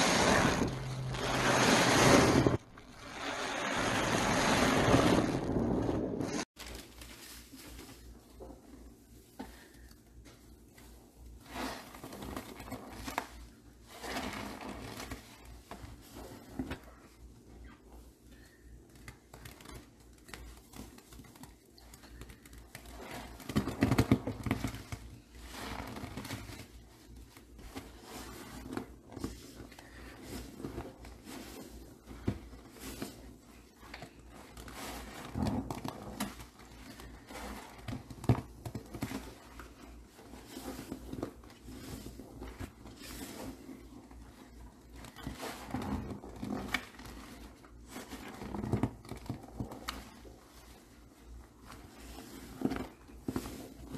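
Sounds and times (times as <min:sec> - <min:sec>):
wet sponge squelching in foam: 0:00.0 - 0:08.2, 0:11.3 - 0:16.9, 0:24.6 - 0:53.9.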